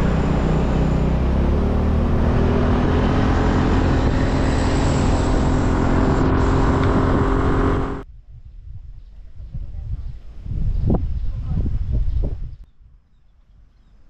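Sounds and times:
vehicle engine running: 0.0 - 8.0
road rumble and rushing: 0.0 - 8.1.

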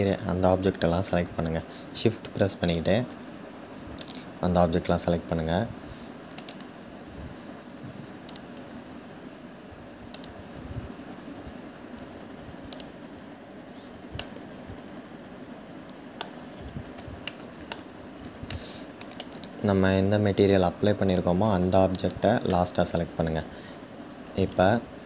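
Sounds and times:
steady background hiss: 0.0 - 25.0
mouse and key clicks: 4.0 - 4.3, 6.4 - 6.8, 8.2 - 8.7, 10.1 - 10.4, 12.7 - 13.0, 18.5 - 19.6.

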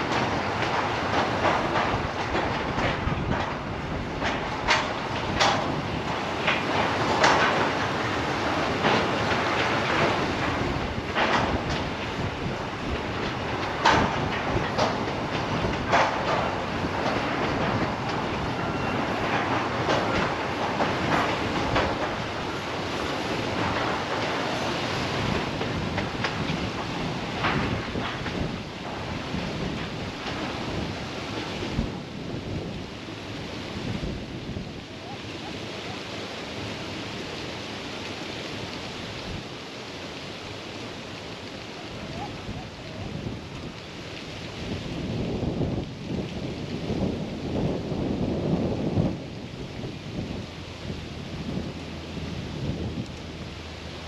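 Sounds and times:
wheel clacks: 0.0 - 33.2
freight train rolling past: 0.0 - 54.0
wheels rushing on rail: 0.0 - 54.0.

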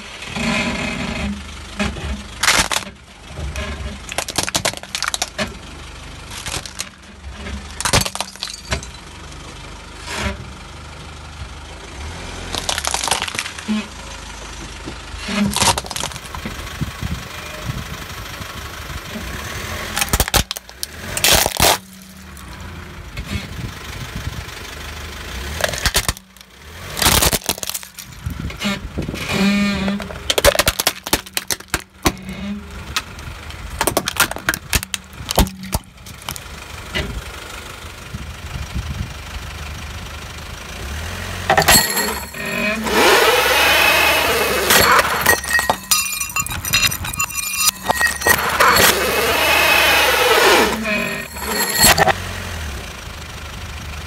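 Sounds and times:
engine hum: 0.0 - 54.0
glasses shattering: 7.8 - 9.1, 20.0 - 22.4, 25.6 - 26.4, 27.0 - 28.2, 30.0 - 31.9, 41.5 - 52.3.

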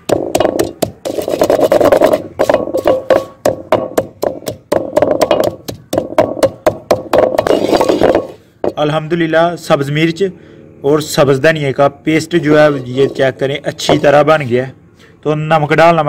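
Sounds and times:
wooden pestle pounding in bowl: 0.0 - 8.8, 13.8 - 14.1.

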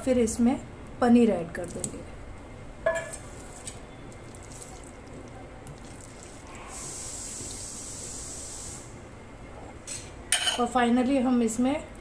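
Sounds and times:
steady hiss: 6.4 - 9.1.

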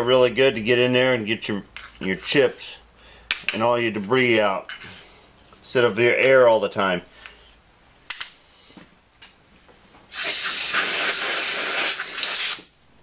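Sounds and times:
compressed air blow gun hissing: 10.1 - 12.7.

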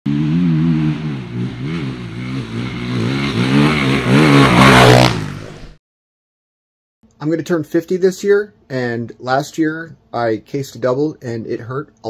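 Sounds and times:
dirt bike engine revving: 0.1 - 5.8.

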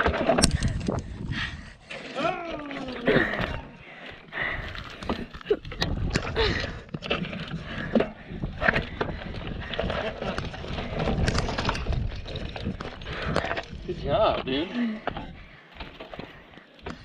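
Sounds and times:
bike frame rattling: 0.0 - 1.4, 4.3 - 17.0
wind rumbling on microphone: 0.0 - 1.9, 4.4 - 14.6.

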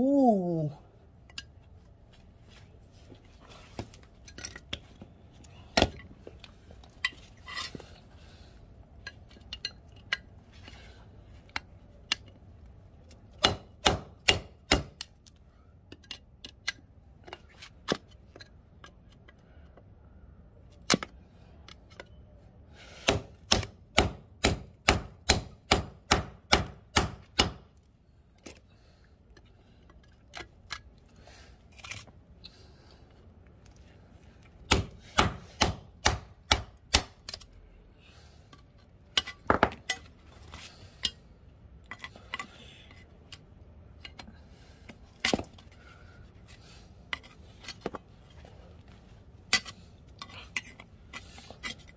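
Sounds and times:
hammer striking metal: 13.4 - 14.9, 23.0 - 27.6, 34.7 - 37.3.

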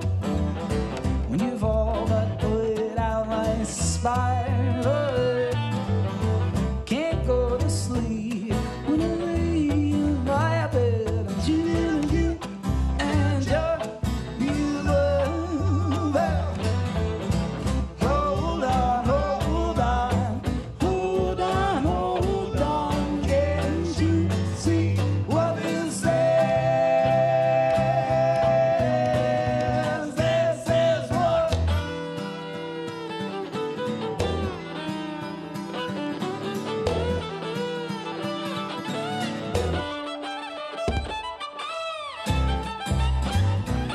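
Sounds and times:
upright bass: 0.0 - 33.0, 34.0 - 34.8, 36.7 - 37.7, 39.0 - 40.0, 42.3 - 43.9
acoustic guitar: 0.0 - 43.9
person singing lead vocal: 1.3 - 6.1, 6.8 - 16.8, 18.0 - 32.4
fiddle: 4.0 - 6.8, 13.8 - 24.3, 31.4 - 43.9.

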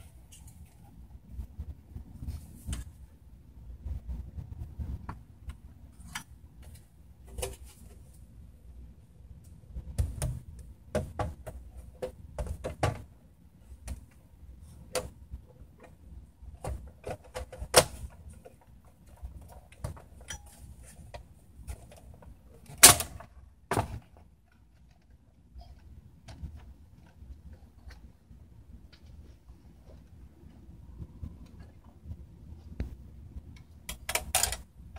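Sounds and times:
hard parts clicking and knocking: 33.6 - 34.7.

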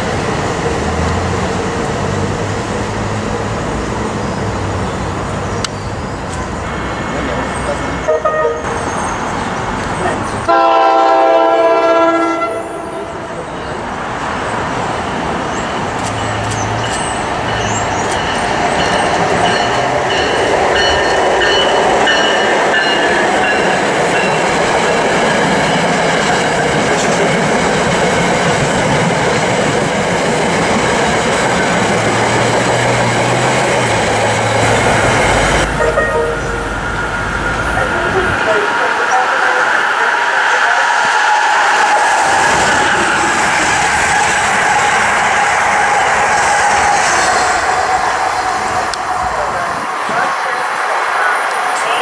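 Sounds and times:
train wheels on rails: 0.0 - 52.0
train horn: 8.0 - 8.8, 10.5 - 13.4, 34.6 - 36.8.

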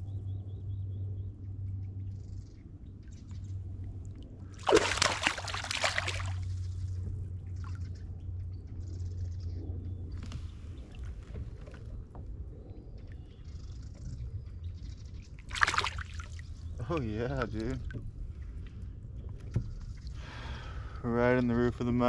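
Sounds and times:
low steady rumble: 0.0 - 22.0
fish splashing at water surface: 4.6 - 6.6, 15.5 - 16.4.

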